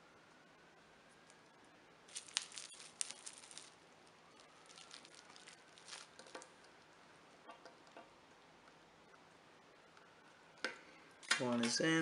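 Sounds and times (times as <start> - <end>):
bubble wrap crinkling: 2.0 - 7.0.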